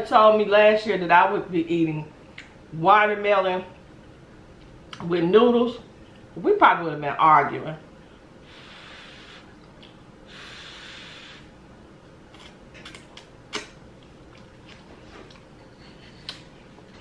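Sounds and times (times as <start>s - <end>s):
mouth clicks and smacks: 12.3s - 15.5s, 16.1s - 16.5s.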